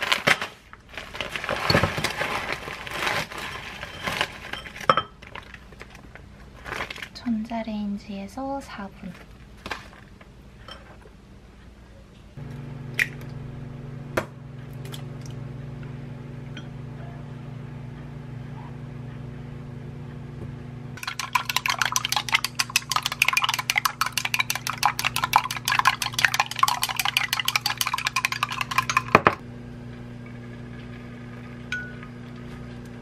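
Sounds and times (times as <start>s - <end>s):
low hum: 12.4s - 33.0s
chopsticks beating eggs in glass: 21.0s - 29.4s.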